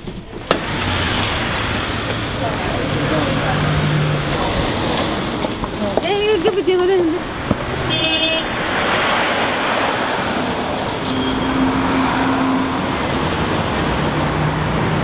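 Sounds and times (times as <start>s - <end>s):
road traffic passing: 0.0s - 15.0s
short high-pitched tone: 11.0s - 12.8s.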